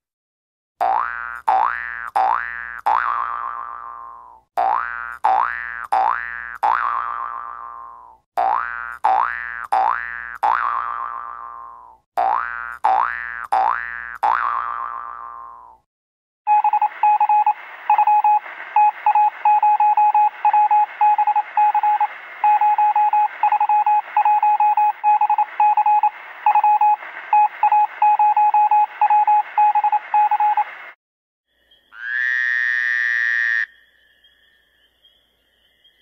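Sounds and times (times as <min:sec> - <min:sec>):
morse code beeping: 0:16.5 - 0:30.7
radio hiss: 0:16.5 - 0:31.0.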